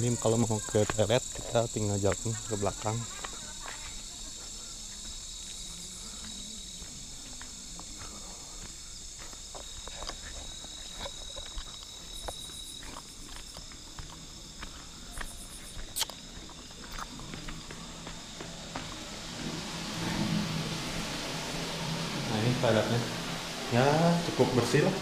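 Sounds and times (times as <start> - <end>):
crickets trilling: 0.0 - 25.0
footsteps: 0.0 - 25.0.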